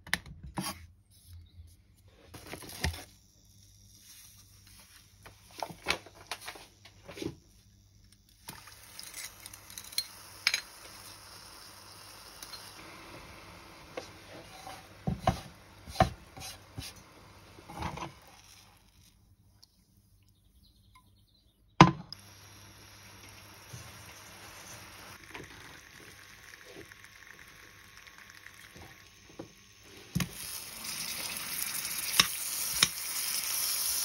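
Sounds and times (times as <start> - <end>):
faint steady hiss: 1.4 - 20.8, 21.6 - 34.0
utensils clinking on a saucepan: 8.5 - 11.0, 12.4 - 12.8.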